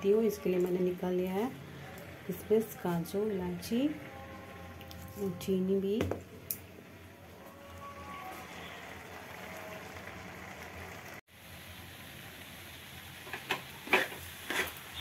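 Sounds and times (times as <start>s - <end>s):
spatula scraping pan: 13.2s - 15.0s.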